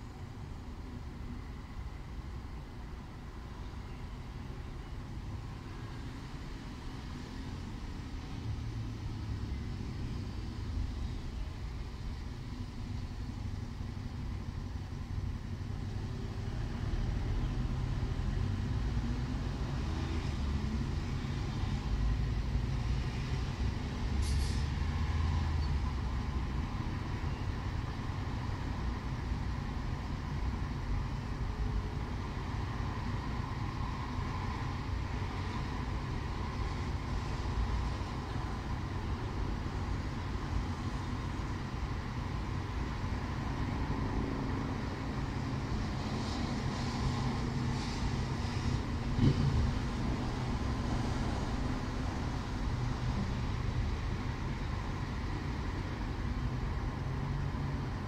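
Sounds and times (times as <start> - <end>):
road traffic rumble: 0.0 - 58.0
short hiss: 24.2 - 24.8.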